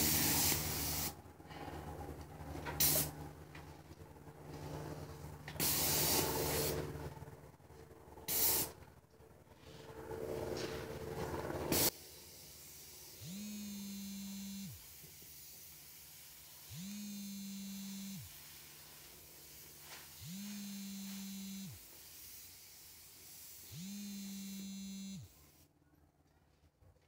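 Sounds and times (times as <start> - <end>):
spray gun hissing: 0.0 - 1.1, 2.8 - 3.1, 5.6 - 6.8, 8.3 - 8.7, 21.8 - 23.8
electric pump motor whirring: 0.0 - 1.2, 10.1 - 15.8, 16.6 - 18.4, 20.1 - 21.9, 23.5 - 25.5.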